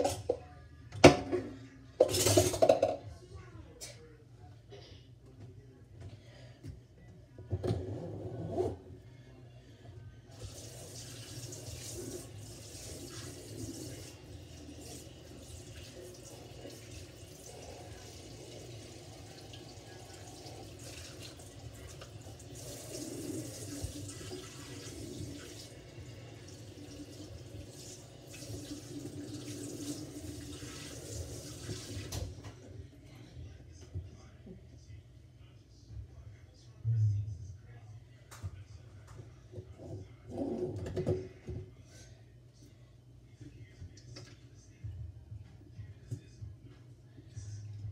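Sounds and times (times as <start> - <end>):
dishes knocking: 1.0 - 3.1
water running into a metal sink: 10.4 - 32.4.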